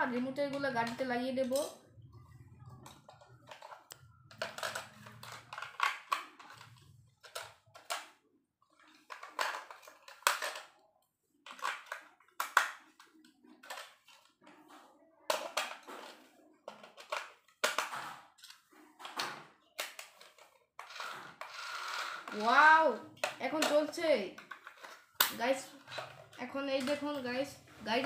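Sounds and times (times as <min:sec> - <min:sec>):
batteries clicking into plastic toy: 0:02.8 - 0:08.2, 0:08.9 - 0:10.7, 0:15.3 - 0:27.2.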